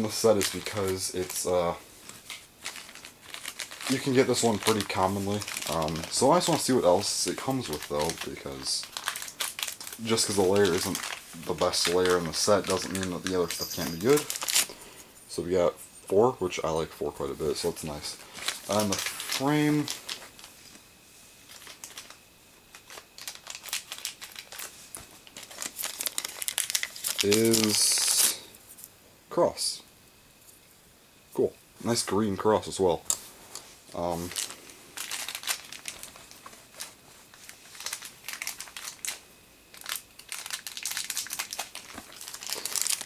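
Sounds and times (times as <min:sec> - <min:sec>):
packaging wrapper crinkling: 0:00.0 - 0:14.8, 0:17.4 - 0:20.8, 0:21.4 - 0:28.4, 0:33.1 - 0:43.0.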